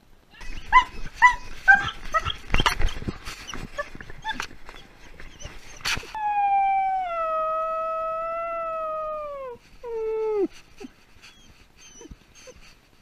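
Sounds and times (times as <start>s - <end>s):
dog howling: 5.2s - 10.5s.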